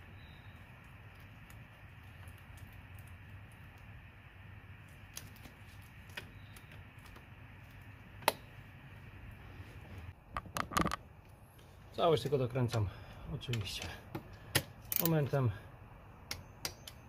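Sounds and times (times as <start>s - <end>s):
low steady hum: 0.0s - 17.0s
tools and parts clicking: 14.5s - 15.2s.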